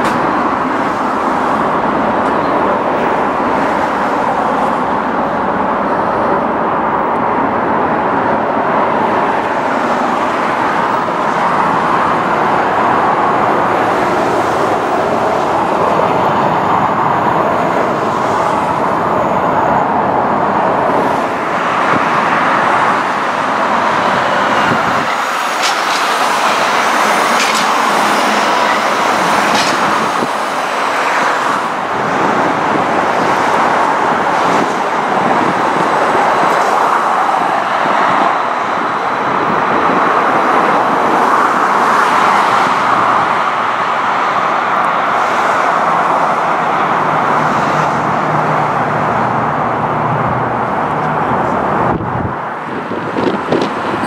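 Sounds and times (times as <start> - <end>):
light rail cars running: 0.0 - 54.0
traffic hiss: 22.6 - 32.1.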